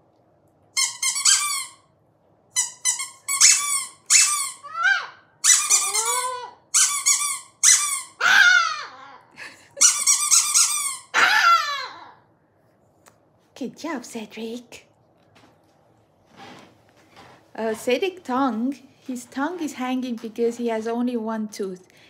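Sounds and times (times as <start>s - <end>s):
rubber squeaky toy squeaking: 0.8s - 1.8s, 2.6s - 8.2s, 9.8s - 11.1s
small dog yapping: 3.4s - 9.3s, 10.6s - 12.2s.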